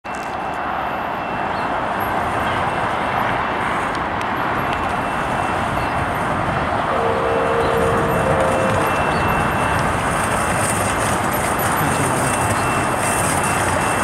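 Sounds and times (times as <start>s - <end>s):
road traffic: 0.0s - 14.0s
wind: 0.0s - 14.0s
faint steady tone: 6.9s - 9.8s.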